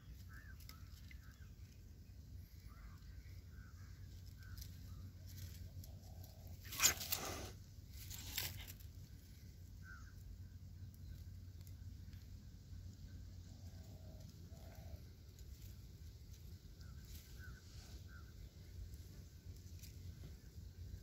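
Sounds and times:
kitten hissing: 6.6 - 7.6.

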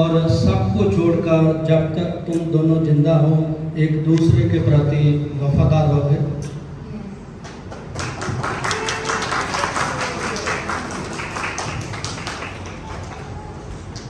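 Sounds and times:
crowd clapping: 7.4 - 14.0.

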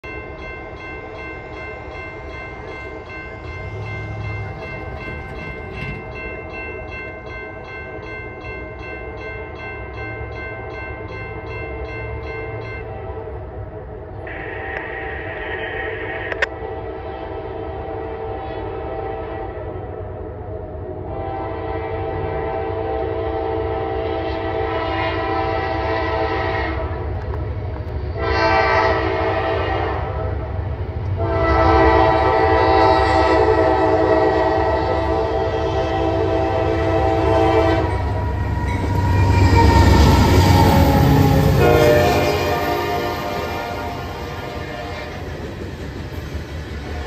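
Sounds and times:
train wheel noise: 0.0 - 47.0
locomotive air horn blasts: 14.3 - 15.4, 16.3 - 19.8, 21.1 - 27.1, 28.2 - 30.3, 31.2 - 38.2, 39.4 - 45.2.

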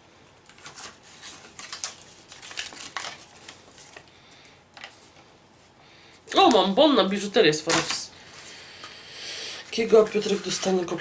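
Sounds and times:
packaging rustling and crinkling: 0.4 - 4.1.

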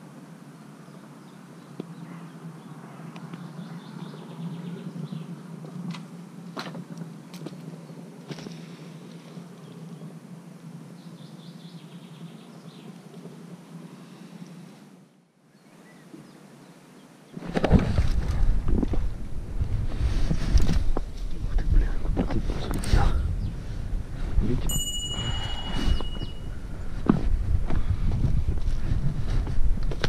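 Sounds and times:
outdoor background noise: 0.0 - 30.0
small birds chirping: 0.5 - 6.4, 7.0 - 14.8, 15.4 - 17.4, 25.2 - 26.9.

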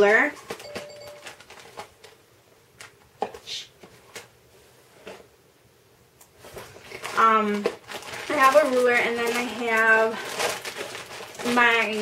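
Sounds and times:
rummaging in plastic bag: 0.0 - 2.2, 6.4 - 12.0.

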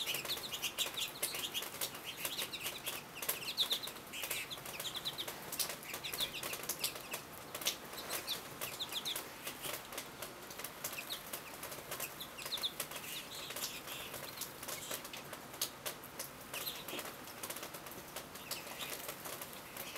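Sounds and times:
high twittering bird calls: 0.0 - 9.8, 10.8 - 15.1.

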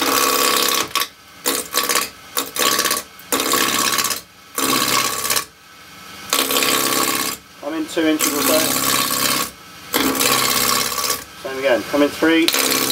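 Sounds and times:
gouge cutting wood on lathe: 0.0 - 5.5, 6.3 - 7.4, 8.2 - 11.2, 12.5 - 12.9
lathe running: 0.0 - 5.5, 6.3 - 12.9.

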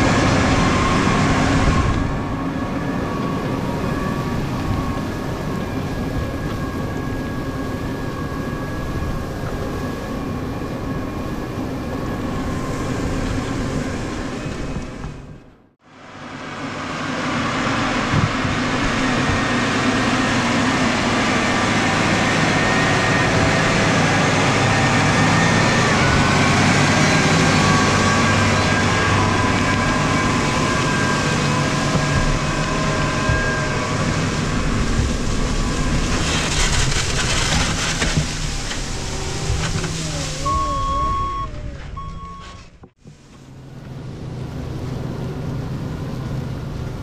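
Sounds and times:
tractor engine running with whine: 0.0 - 47.0
plough turning soil: 24.5 - 41.3.

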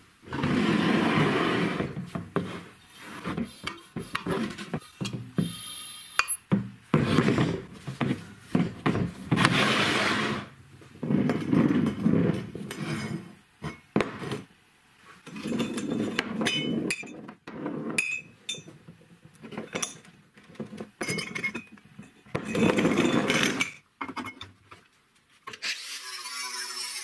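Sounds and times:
steel tubes rolling on wood: 0.2 - 5.7, 6.9 - 14.5, 15.2 - 23.8.

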